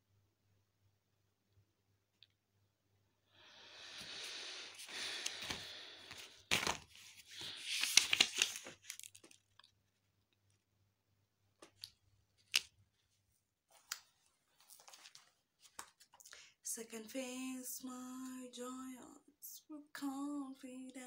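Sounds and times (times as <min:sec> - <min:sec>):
notebook pages flipping: 0:04.8 - 0:09.5, 0:13.7 - 0:16.2.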